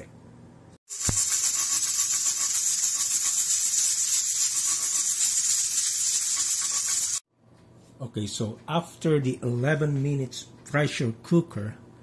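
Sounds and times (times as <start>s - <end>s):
pressure cooker hissing steam: 0.9s - 7.2s.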